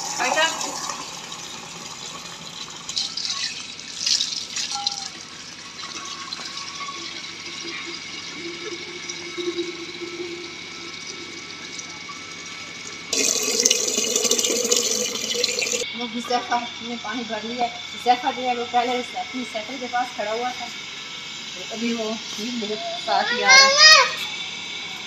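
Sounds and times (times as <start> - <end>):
tap water filling metal pot: 0.0 - 12.3, 13.1 - 15.8.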